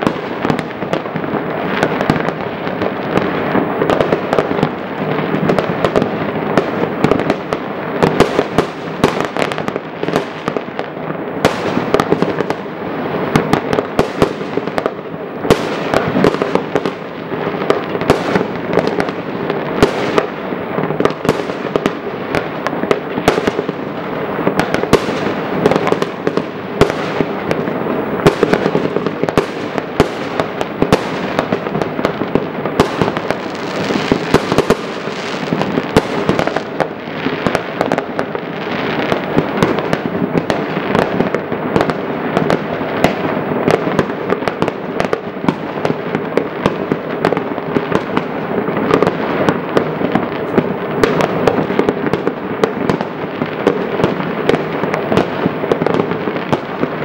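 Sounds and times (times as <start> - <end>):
fireworks bangs and crackles: 0.0 - 57.0.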